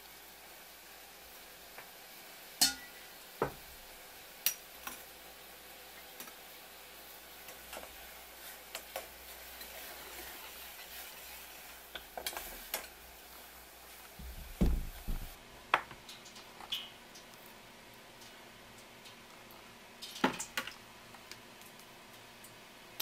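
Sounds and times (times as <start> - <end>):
sauce simmering in a pot: 0.0 - 23.0
metal ladle clinking against pot: 2.6 - 2.9
low thump: 14.2 - 15.4.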